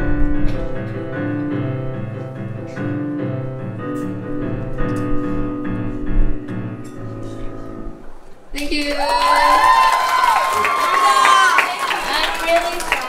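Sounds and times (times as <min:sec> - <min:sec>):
piano music: 0:00.0 - 0:08.5.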